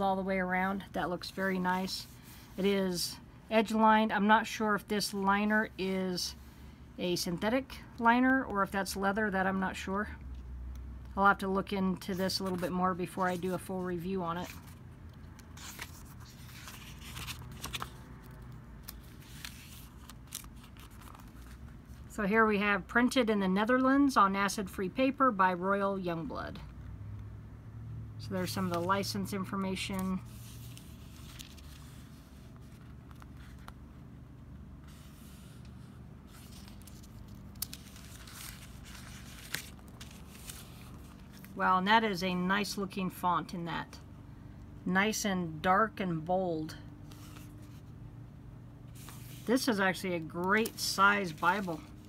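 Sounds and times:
thin pages turning: 12.2 - 13.7, 14.4 - 22.1, 29.9 - 34.1, 34.8 - 41.6, 47.1 - 47.9, 49.0 - 49.6, 50.3 - 52.0.

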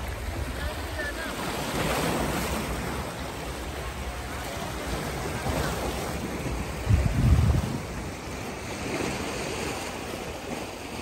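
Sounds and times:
sea waves washing in: 0.0 - 11.0
wind rumbling on microphone: 4.8 - 11.0.

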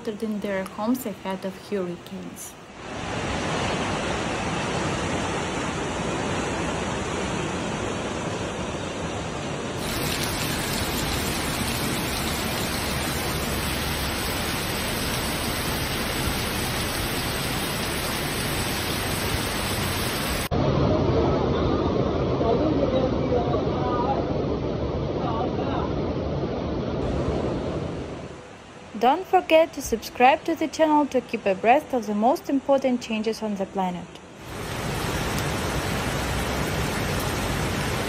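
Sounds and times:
torrential rain pouring: 2.6 - 20.6, 34.3 - 38.0
floodwater rushing: 9.8 - 20.5, 34.4 - 38.0.

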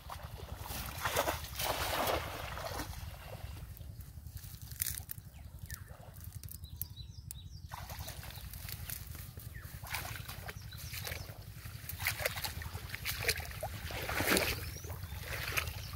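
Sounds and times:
low rumble: 0.0 - 15.9
net splashing into water: 0.4 - 3.4, 11.9 - 15.8.

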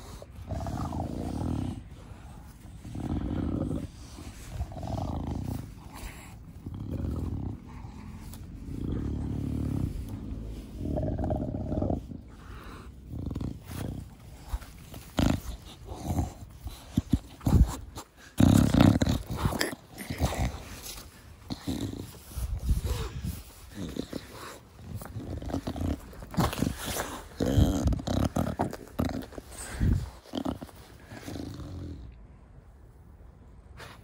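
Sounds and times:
dog breathing noisily: 0.0 - 32.0.

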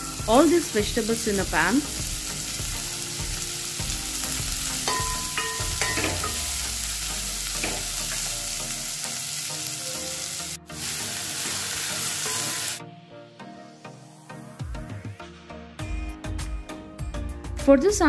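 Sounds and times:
vegetables sizzling in a pan: 0.0 - 12.8.

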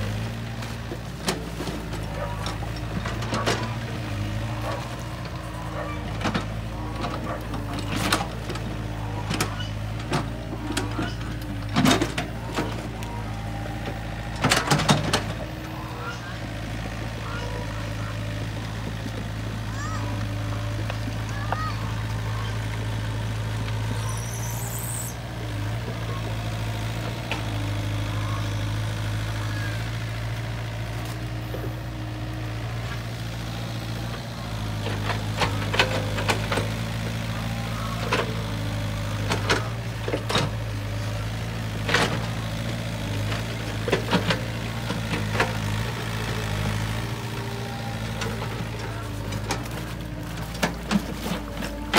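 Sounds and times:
excavator diesel engine running: 0.0 - 51.9.

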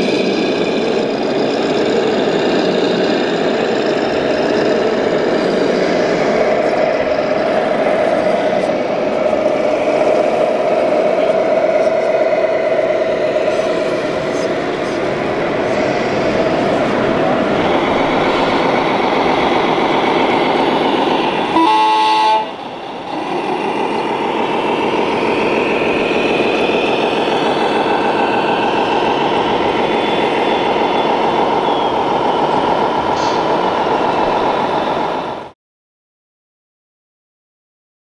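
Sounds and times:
hall noise: 0.0 - 35.5
model truck horn: 21.5 - 22.6.

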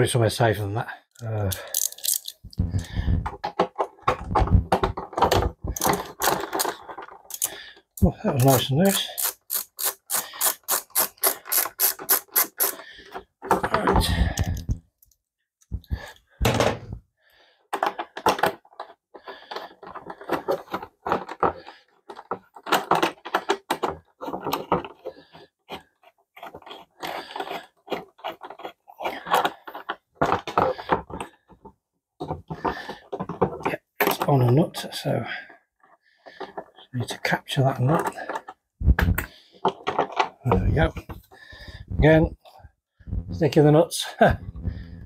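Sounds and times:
plastic panel knocks and clicks: 2.5 - 6.4, 15.7 - 17.0
ratchet spanner clicking rapidly: 9.2 - 12.8.

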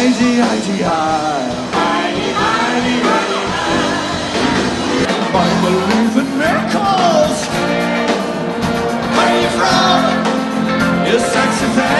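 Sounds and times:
person singing: 0.0 - 8.4, 10.9 - 11.9
live rock band playing: 0.0 - 11.9.

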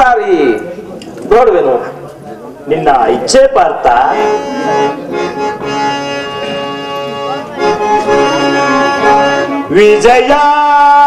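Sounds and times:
harmonium playing chords: 3.4 - 11.0.

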